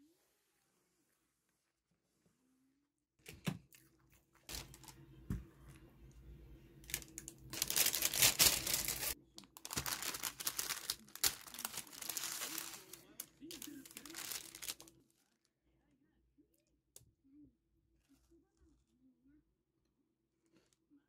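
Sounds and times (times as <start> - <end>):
paper crinkling and rustling: 4.5 - 5.0, 6.8 - 15.4.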